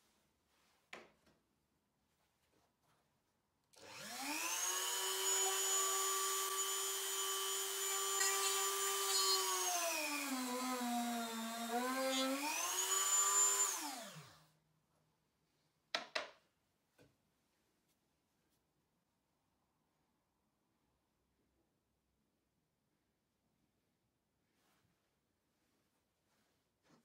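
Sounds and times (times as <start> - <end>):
drill bit boring through wood: 3.8 - 14.4
rotary tool whining: 3.8 - 14.4.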